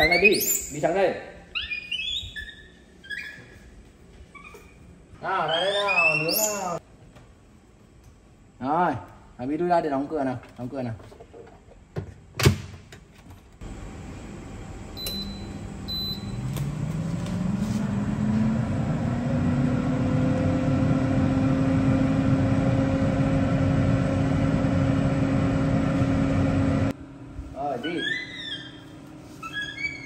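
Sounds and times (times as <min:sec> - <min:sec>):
fan motor humming: 0:13.6 - 0:30.0
short button beeps: 0:15.0 - 0:16.4.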